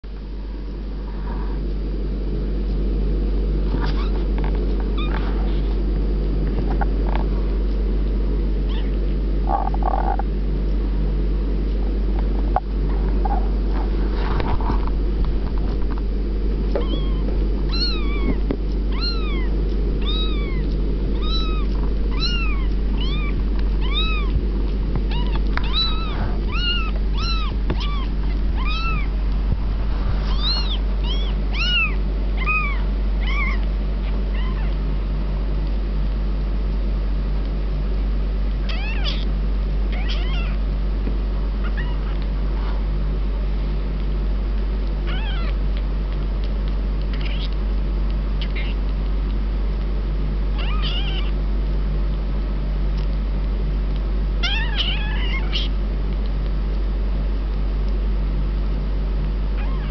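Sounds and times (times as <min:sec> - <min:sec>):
steady low hum: 0:00.0 - 0:59.9
kitten mewing: 0:03.8 - 0:04.3, 0:08.7 - 0:10.2, 0:16.8 - 0:24.4, 0:25.1 - 0:29.2, 0:30.3 - 0:34.8, 0:38.6 - 0:39.3, 0:39.9 - 0:40.6, 0:41.6 - 0:42.3, 0:45.0 - 0:45.6, 0:47.1 - 0:47.6, 0:48.4 - 0:48.9, 0:50.5 - 0:51.4, 0:54.4 - 0:55.8, 0:59.6 - 0:59.9.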